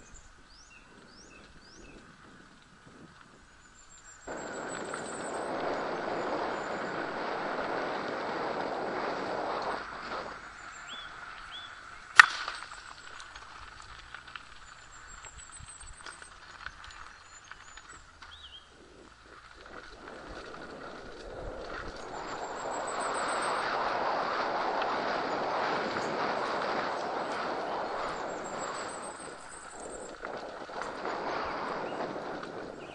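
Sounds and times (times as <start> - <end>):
bike tyres rolling on gravel: 0.0 - 32.9
sharp click: 12.2 - 13.0.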